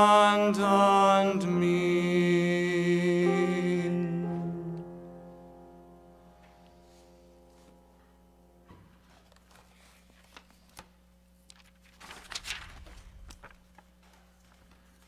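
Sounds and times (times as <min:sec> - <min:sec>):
piano chord: 0:00.0 - 0:09.0
paper and book rustling: 0:08.8 - 0:15.0.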